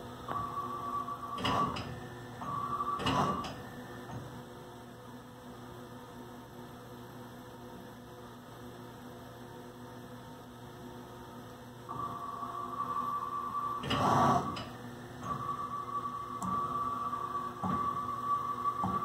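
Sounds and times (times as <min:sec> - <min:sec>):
mill axis drives whining: 0:00.0 - 0:04.5, 0:11.9 - 0:19.0
steady machine hum: 0:00.0 - 0:19.0.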